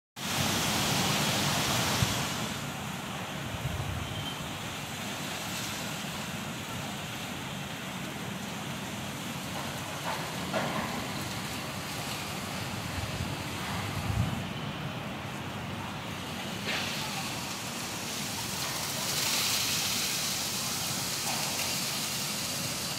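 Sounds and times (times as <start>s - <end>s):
heavy rain hissing: 0.2s - 22.9s.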